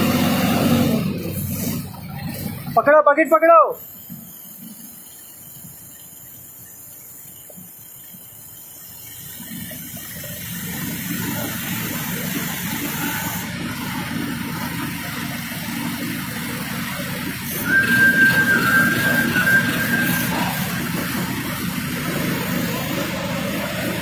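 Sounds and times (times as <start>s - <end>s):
heavy machinery rumbling: 9.4s - 24.0s.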